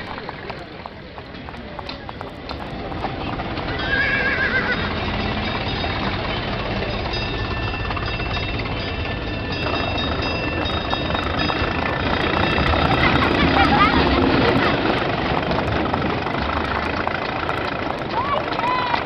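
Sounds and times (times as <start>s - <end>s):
horse hooves clip-clopping: 0.0s - 19.0s
street traffic rumble: 0.0s - 19.0s
horse whinnying: 3.7s - 4.9s.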